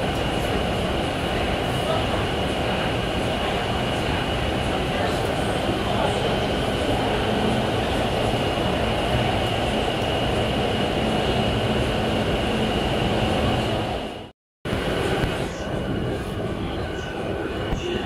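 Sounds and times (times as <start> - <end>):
train rumble in tunnel: 0.0 - 18.0.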